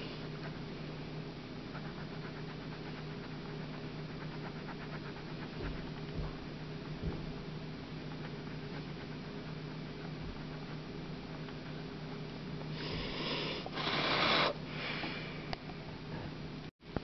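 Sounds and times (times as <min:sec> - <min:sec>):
steady low hum: 0:00.0 - 0:17.0
pencil scratching on paper: 0:01.7 - 0:12.0
dull low bumps: 0:05.5 - 0:07.5.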